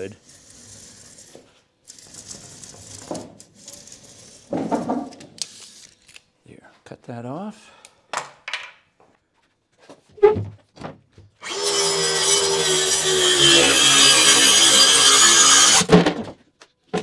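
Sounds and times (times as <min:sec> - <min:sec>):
circular saw cutting plywood: 0:11.4 - 0:15.9.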